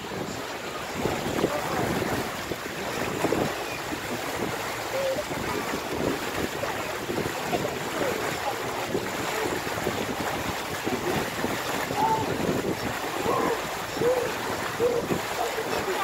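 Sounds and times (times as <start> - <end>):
boat engine running: 0.0 - 16.0
water washing along hull: 0.0 - 16.0
wind on microphone: 0.0 - 16.0.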